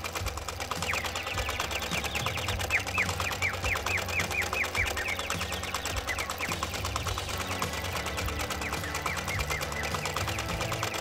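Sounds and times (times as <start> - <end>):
small electric motor humming and rattling: 0.0 - 11.0.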